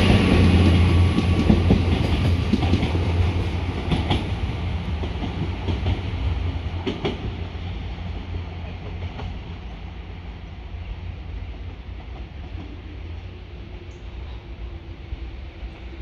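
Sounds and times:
train wheels clicking over rail joints: 0.0s - 9.8s
diesel train engines humming: 0.0s - 16.0s.

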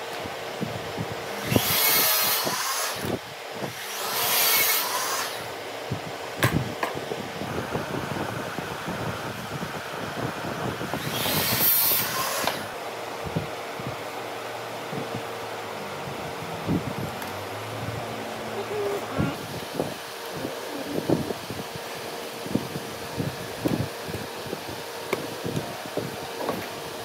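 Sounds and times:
faint steady hum: 12.6s - 24.8s.

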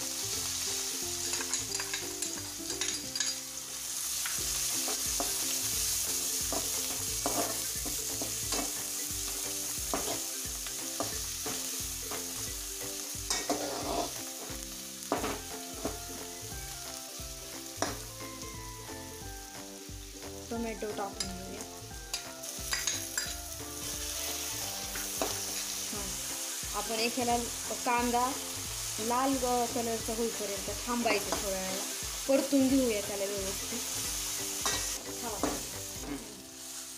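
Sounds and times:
onions sizzling in hot oil: 0.0s - 36.9s
metal ladle scraping pan: 13.3s - 14.2s.

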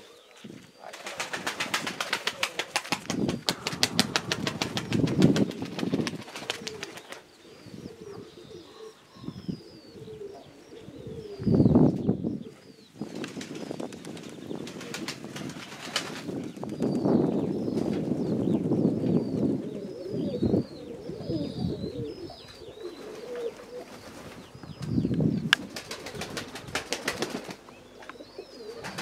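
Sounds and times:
small birds chirping: 0.0s - 29.0s
pigeon wings flapping: 0.9s - 7.2s, 13.2s - 16.8s, 25.6s - 27.6s, 28.7s - 29.0s
pigeon cooing: 3.4s - 13.0s, 19.2s - 24.5s, 25.7s - 29.0s.

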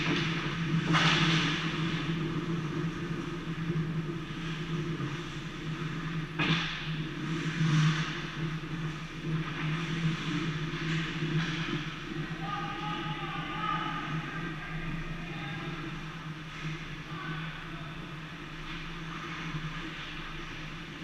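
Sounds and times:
skate blades scraping ice: 0.0s - 12.2s
low mechanical hum: 0.0s - 21.0s.

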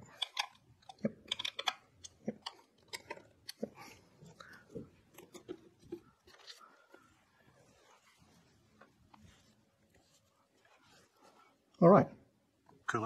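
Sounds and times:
computer parts being handled: 0.0s - 6.6s.

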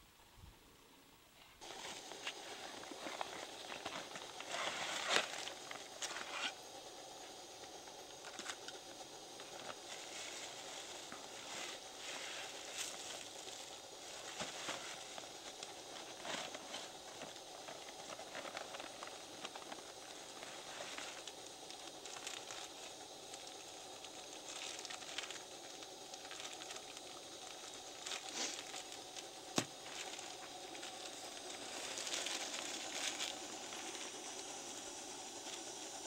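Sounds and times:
steady hiss: 0.0s - 36.0s
plastic bags crinkling: 12.9s - 33.8s.

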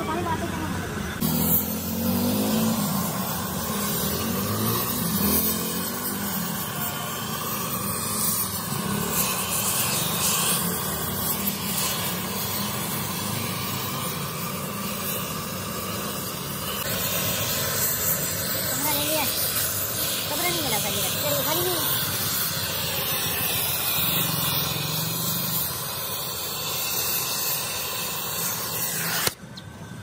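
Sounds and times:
cutting torch hissing: 0.0s - 30.0s.

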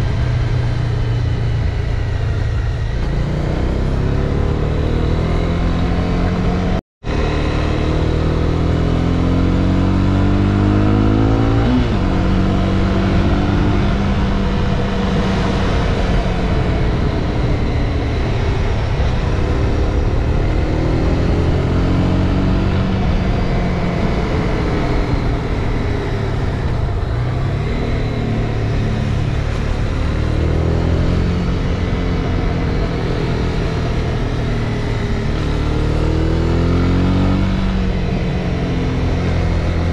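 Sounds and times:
motorcycle engine revving: 0.0s - 39.9s
wind rush: 10.9s - 39.9s.

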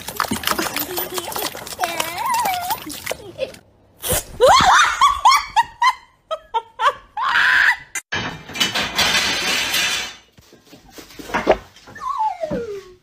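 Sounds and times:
person squealing and screaming: 7.2s - 8.0s
clatter of objects crashing down: 8.1s - 10.3s.

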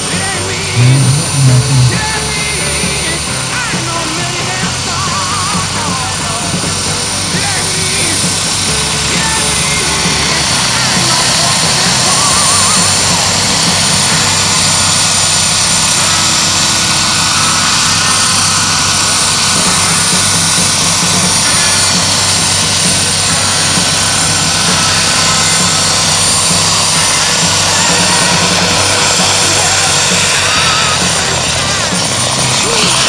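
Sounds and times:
model helicopter turbine whine: 0.0s - 33.0s.

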